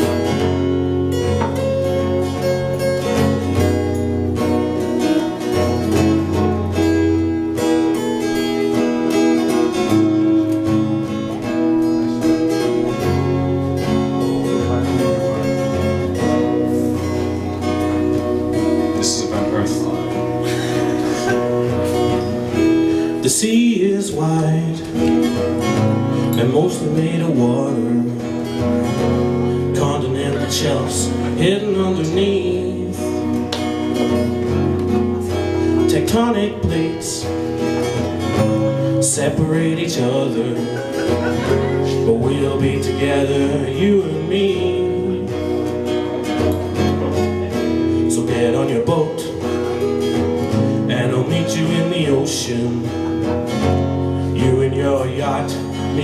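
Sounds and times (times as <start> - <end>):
acoustic guitars strummed and picked: 0.0 - 56.0
man singing: 12.0 - 34.1, 35.6 - 56.0.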